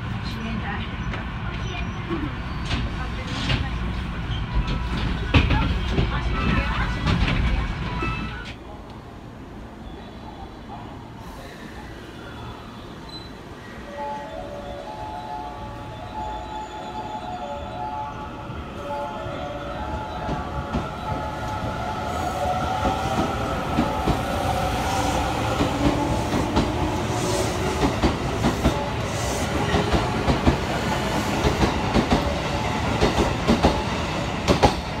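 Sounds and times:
train rumble: 0:00.0 - 0:35.0.

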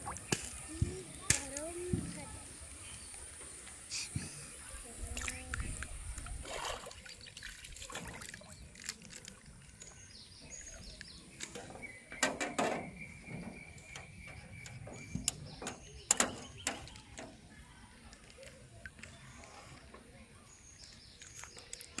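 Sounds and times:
water splashes: 0:00.0 - 0:02.4, 0:05.0 - 0:11.7.

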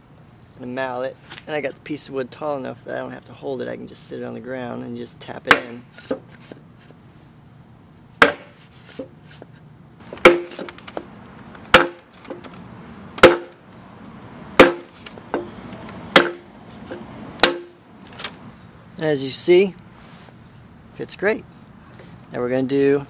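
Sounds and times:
mallet knocks on wood: 0:05.5 - 0:06.2, 0:08.2 - 0:08.6, 0:10.2 - 0:10.8, 0:11.7 - 0:12.4, 0:13.2 - 0:13.6, 0:14.6 - 0:15.5, 0:16.1 - 0:16.4, 0:17.4 - 0:17.8.

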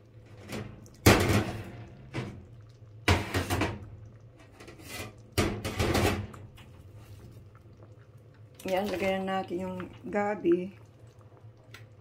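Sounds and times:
low steady hum: 0:00.0 - 0:12.0
knocks and clatters at stove: 0:00.3 - 0:06.7.

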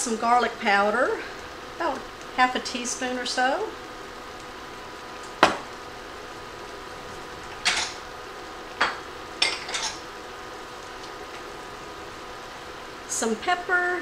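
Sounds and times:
faint steady hum: 0:00.0 - 0:14.0.

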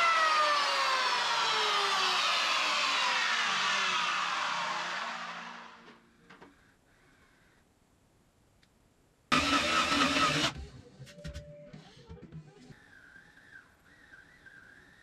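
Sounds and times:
motor whine winding down: 0:00.0 - 0:06.1, 0:09.3 - 0:10.6.

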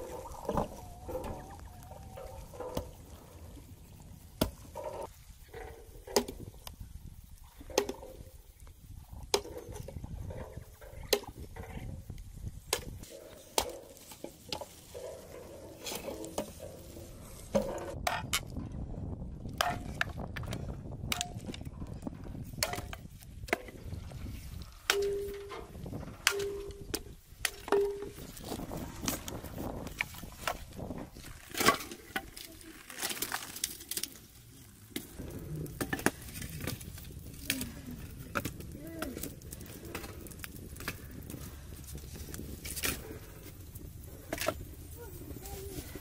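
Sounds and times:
hatchet chopping branches: 0:12.7 - 0:14.9
split sticks clattering: 0:12.7 - 0:18.5, 0:24.8 - 0:30.6.

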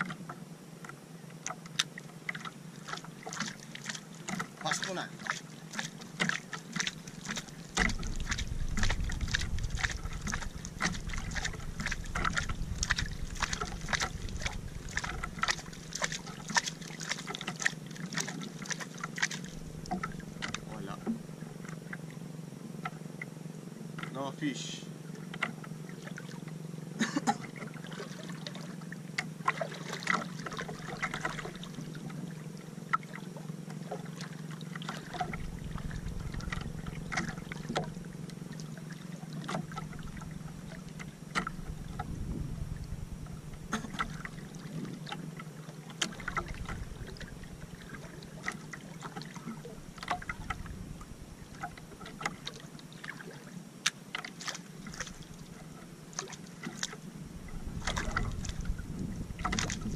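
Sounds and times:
waves lapping against a hull: 0:00.0 - 0:59.9
water slaps and drips: 0:01.5 - 0:21.1, 0:27.2 - 0:31.8, 0:51.6 - 0:55.4, 0:56.2 - 0:57.0, 0:57.8 - 0:58.6, 0:59.4 - 0:59.9
wind rumble on microphone: 0:07.4 - 0:16.7, 0:35.0 - 0:38.2, 0:39.6 - 0:45.2, 0:46.1 - 0:48.5, 0:49.4 - 0:52.5, 0:57.1 - 0:59.9.

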